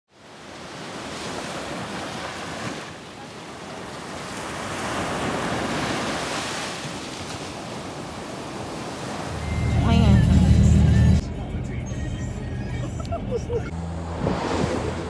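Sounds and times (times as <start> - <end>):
ocean surf on sandy beach: 0.1 - 9.6, 13.4 - 15.0.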